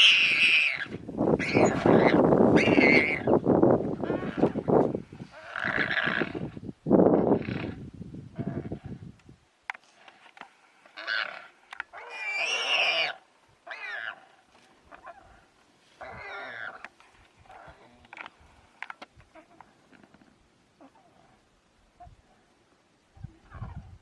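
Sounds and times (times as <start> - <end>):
warthog squealing: 0.0 - 3.3, 11.0 - 14.2.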